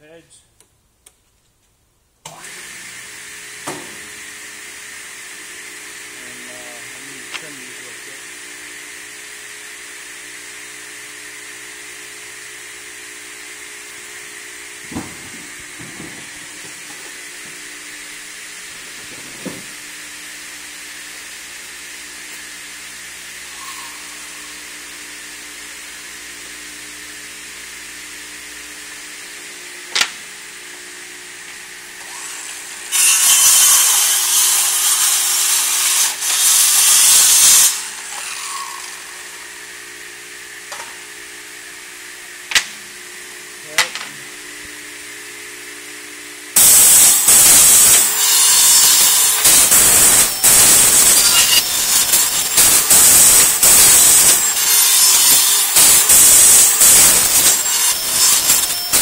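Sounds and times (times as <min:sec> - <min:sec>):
saw blades cutting: 0:02.3 - 0:08.3, 0:29.2 - 0:41.1, 0:46.6 - 0:59.0
mitre saw humming: 0:02.3 - 0:59.0.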